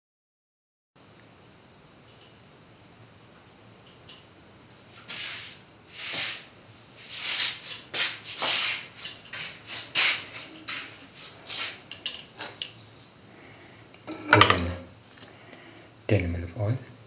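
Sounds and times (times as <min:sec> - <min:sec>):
short rubbing swishes: 0:05.0 - 0:11.9.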